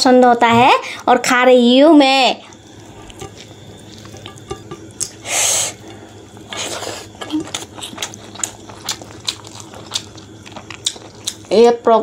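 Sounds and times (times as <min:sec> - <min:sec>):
breathy hisses: 0:05.2 - 0:07.2
wet chewing with lip smacks: 0:05.9 - 0:11.6.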